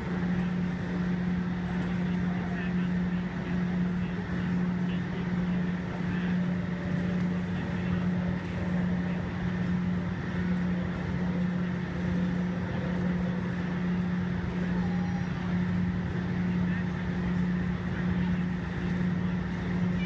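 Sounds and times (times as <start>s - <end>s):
mechanical hum: 0.0s - 20.0s
noisy rumble: 0.0s - 20.0s.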